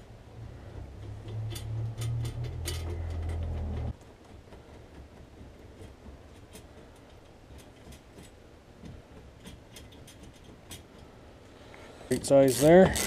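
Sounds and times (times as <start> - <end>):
low background rumble: 0.0 - 4.0
light clicks and rubbing of winch: 0.6 - 11.1, 12.1 - 13.0.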